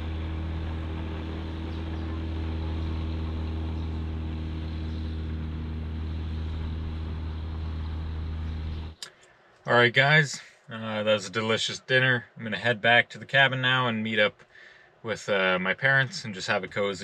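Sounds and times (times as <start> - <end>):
propeller engine drone: 0.0 - 9.2.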